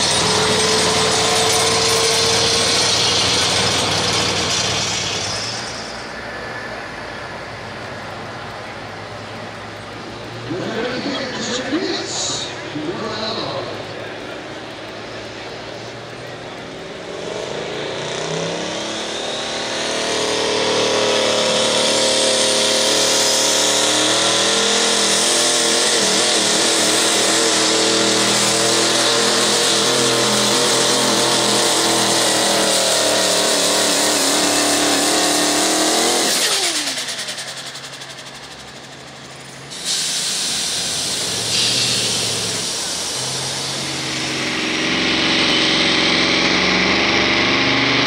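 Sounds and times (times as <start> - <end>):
diesel truck engine and turbo whine: 0.0 - 48.0.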